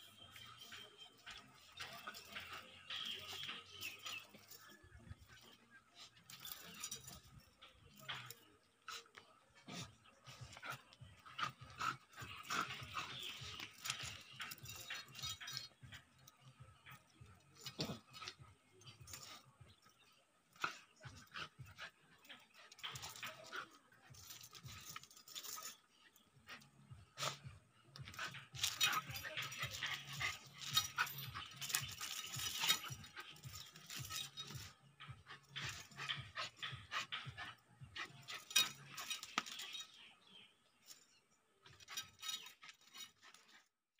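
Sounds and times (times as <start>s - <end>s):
metal chain clinking: 0.0s - 43.7s
dog panting: 0.2s - 40.0s
small dog growling and snarling: 8.9s - 15.6s.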